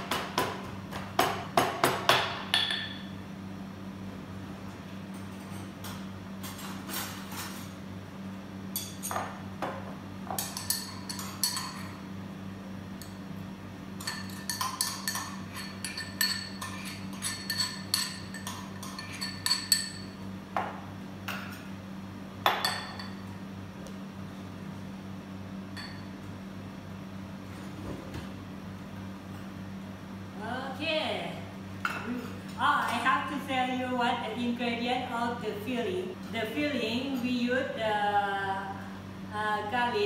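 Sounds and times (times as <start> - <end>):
metal mortar and pestle clinking: 10.4 - 11.9, 14.0 - 20.2.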